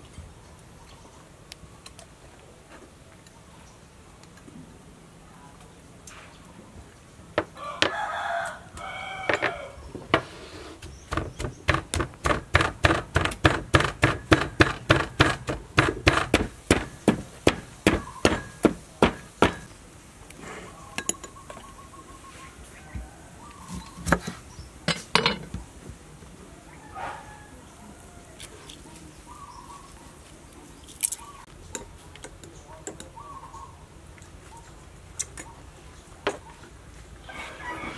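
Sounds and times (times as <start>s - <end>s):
pestle pounding in clay mortar: 10.2s - 19.7s.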